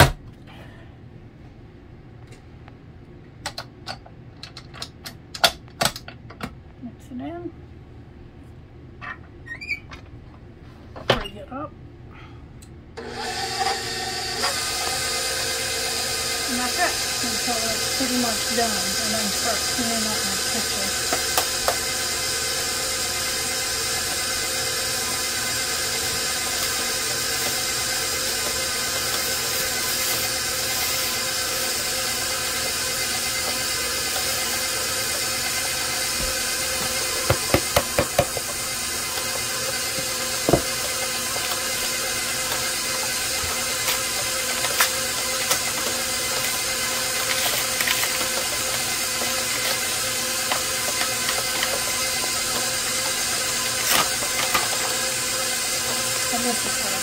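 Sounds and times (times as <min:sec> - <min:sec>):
stand mixer kneading dough: 0:13.0 - 0:57.0.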